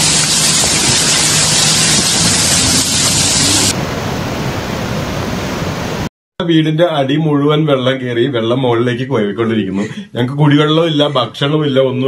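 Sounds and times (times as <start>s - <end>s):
floodwater rushing: 0.0s - 6.1s.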